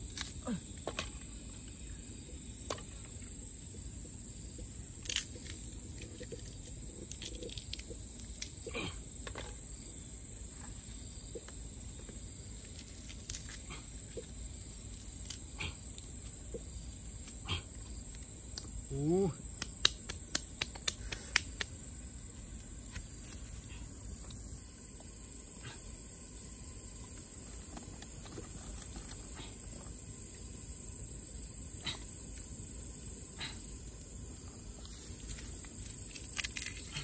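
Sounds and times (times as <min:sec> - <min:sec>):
fire pops and snaps: 0:00.0 - 0:01.3, 0:04.7 - 0:09.6, 0:12.5 - 0:18.8, 0:19.4 - 0:23.5, 0:27.0 - 0:37.0
wood fire crackling: 0:14.2 - 0:18.8, 0:19.4 - 0:37.0.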